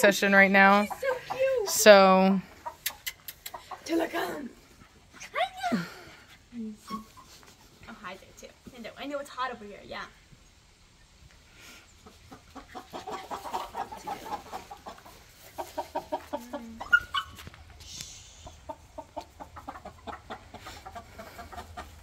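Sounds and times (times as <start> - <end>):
chickens clucking: 0.0 - 5.5, 11.0 - 22.0
chicken squawk: 12.0 - 17.4.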